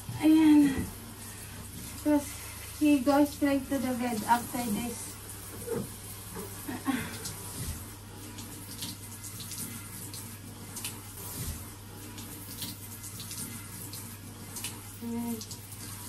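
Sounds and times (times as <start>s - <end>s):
shower head spraying water: 0.0s - 16.0s.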